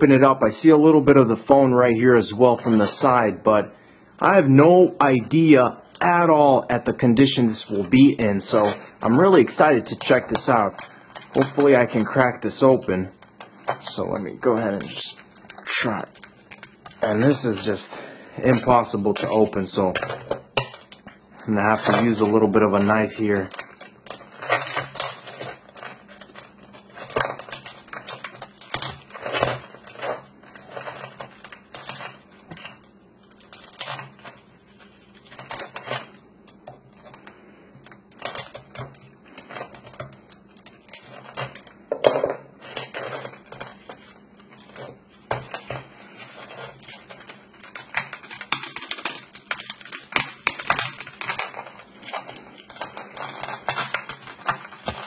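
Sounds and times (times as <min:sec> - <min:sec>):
foam cracking: 0:04.2 - 0:37.3, 0:42.6 - 0:55.0.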